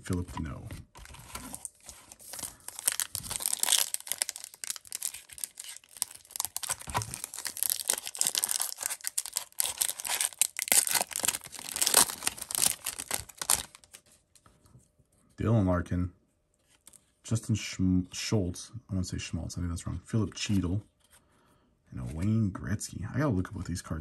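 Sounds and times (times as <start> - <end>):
plastic wrapper crackling: 1.0 - 14.0.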